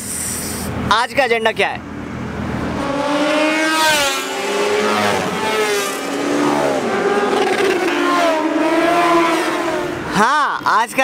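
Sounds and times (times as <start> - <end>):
motorcycles passing at speed: 1.9 - 10.2.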